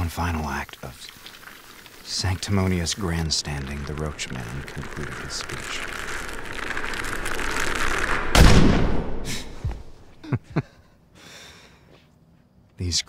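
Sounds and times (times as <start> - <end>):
deep gunshot boom: 8.0 - 10.0
short thuds: 8.2 - 10.2.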